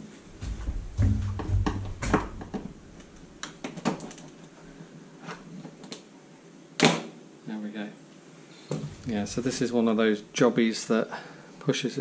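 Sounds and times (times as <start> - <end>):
dull thumps: 0.4 - 3.2.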